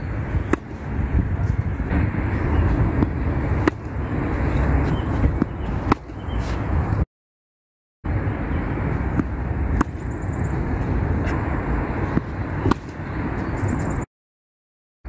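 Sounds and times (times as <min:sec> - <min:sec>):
low outdoor rumble: 0:00.0 - 0:07.0, 0:08.1 - 0:13.9
tennis racket hitting ball: 0:00.4 - 0:06.6, 0:09.1 - 0:11.4, 0:12.0 - 0:13.1.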